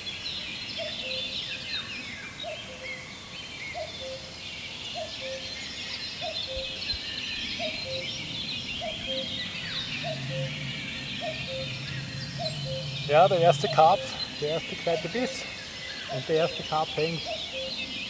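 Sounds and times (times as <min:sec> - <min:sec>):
songbirds singing: 0:00.0 - 0:18.0
low even bird call: 0:06.2 - 0:18.0.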